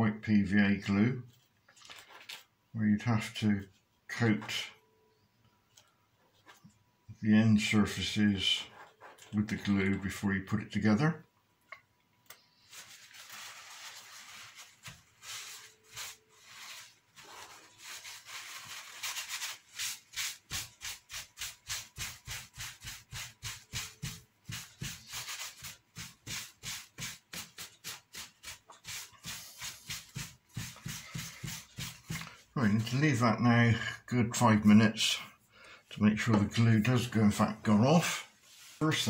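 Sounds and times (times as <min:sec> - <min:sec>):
paper tissue rubbing on board: 0:12.6 - 0:33.0, 0:38.4 - 0:39.0.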